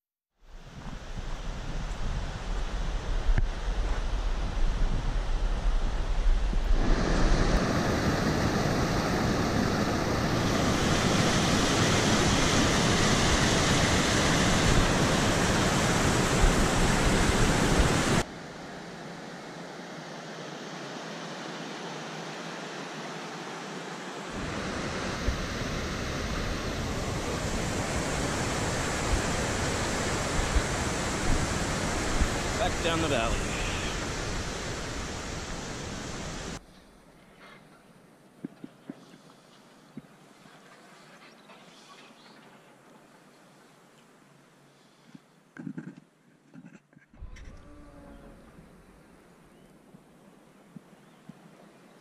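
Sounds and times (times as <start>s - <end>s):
wind on microphone: 0.5s - 18.2s, 24.4s - 36.6s, 47.2s - 49.2s
river rushing: 6.7s - 36.6s.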